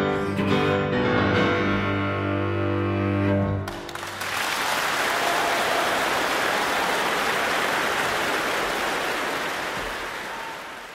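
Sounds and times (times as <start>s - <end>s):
audience applauding: 3.7s - 10.9s.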